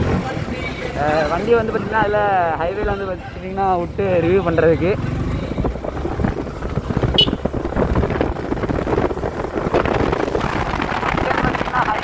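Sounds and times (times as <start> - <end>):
motorcycle engine at speed: 3.9 - 12.0
wind buffeting microphone: 5.4 - 12.0.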